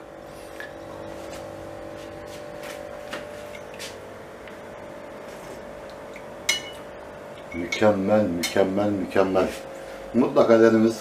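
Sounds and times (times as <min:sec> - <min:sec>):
steady low hum: 0:00.0 - 0:11.0
metal spoon clinking on china bowl: 0:06.5 - 0:06.8.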